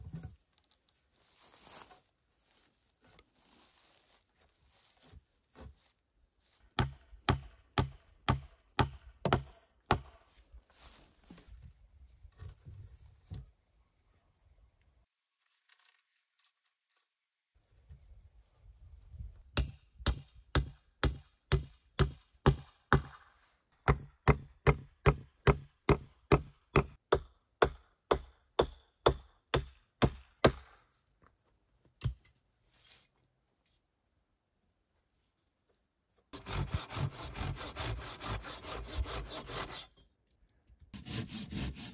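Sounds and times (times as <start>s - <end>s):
axe chopping wood: 6.8s - 10.2s, 19.6s - 30.8s.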